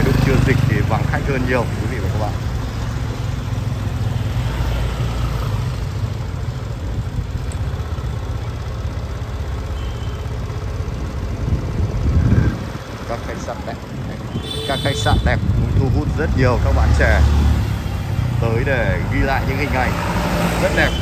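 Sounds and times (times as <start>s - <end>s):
vehicle engine rumbling: 0.0s - 21.0s.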